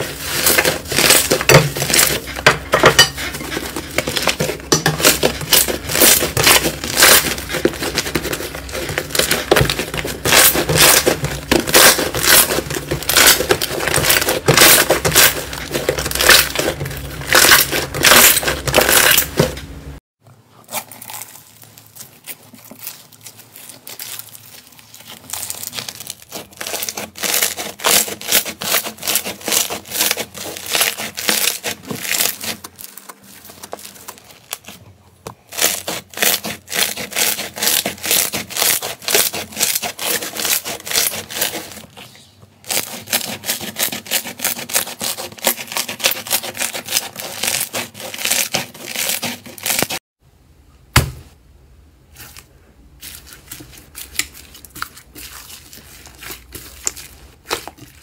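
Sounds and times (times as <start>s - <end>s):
crunchy slime squeezed by hand: 20.6s - 34.7s.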